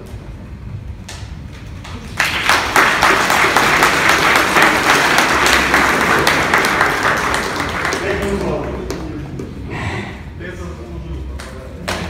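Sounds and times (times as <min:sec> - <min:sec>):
audience applauding: 0:01.9 - 0:09.0.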